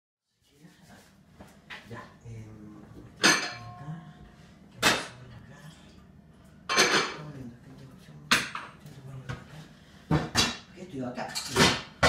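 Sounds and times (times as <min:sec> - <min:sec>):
kitchenware clattering: 0:03.0 - 0:03.8, 0:04.8 - 0:05.4, 0:06.6 - 0:07.4, 0:08.3 - 0:09.5, 0:10.1 - 0:12.0
dishes knocking on a counter: 0:10.1 - 0:10.6.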